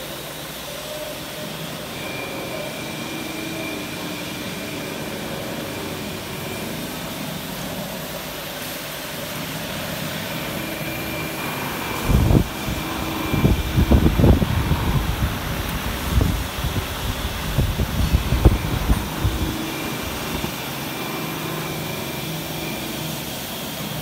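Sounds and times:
faint high whine: 0:00.0 - 0:24.0
knife grinder humming: 0:01.0 - 0:24.0
wind buffeting microphone: 0:11.9 - 0:20.6.

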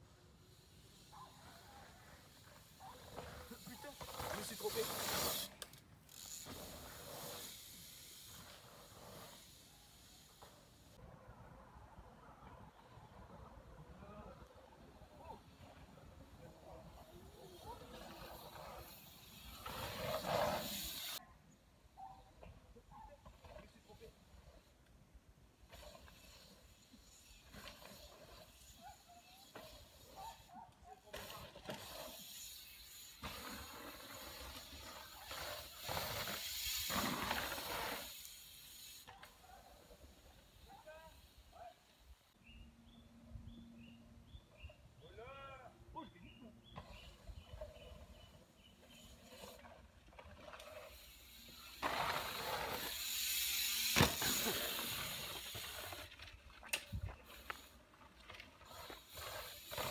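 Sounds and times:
bicycle tyres crunching on dirt: 0:00.5 - 0:11.0, 0:15.4 - 0:21.2, 0:25.6 - 0:30.5, 0:31.1 - 0:41.7, 0:46.6 - 0:59.9
bike landing thud: 0:53.8 - 0:55.1.

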